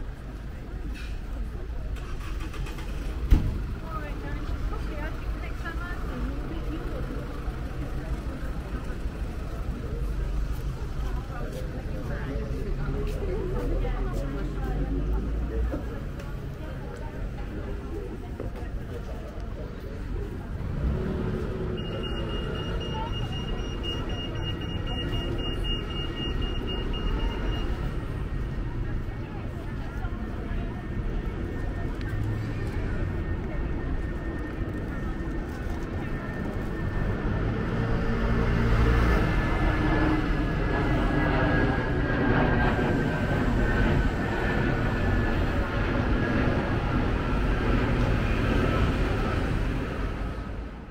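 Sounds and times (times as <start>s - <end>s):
low traffic rumble: 0.0s - 50.9s
high-pitched electronic beep: 21.8s - 27.8s.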